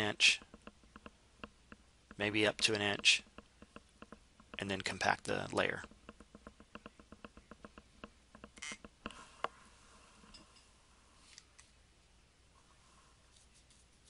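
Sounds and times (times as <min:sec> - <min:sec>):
sharp clicks: 0:00.4 - 0:09.0.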